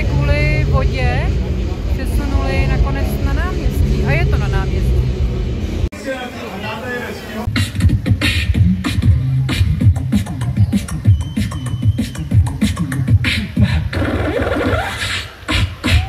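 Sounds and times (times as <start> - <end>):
amplified beatboxing: 7.5 - 16.0.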